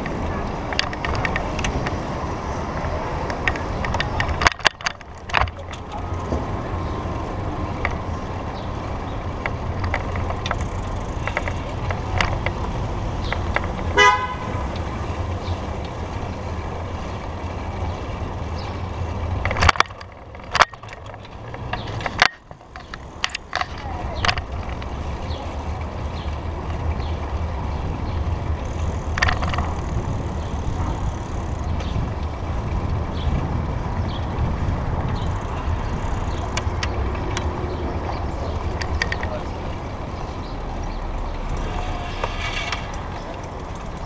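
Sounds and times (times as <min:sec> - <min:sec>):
tyres rumbling on road: 0:00.0 - 0:44.0
sharp knocks and rattles: 0:02.7 - 0:06.6, 0:09.4 - 0:14.4, 0:18.6 - 0:25.0, 0:28.6 - 0:39.6, 0:40.4 - 0:44.0
wind on microphone: 0:27.5 - 0:39.1.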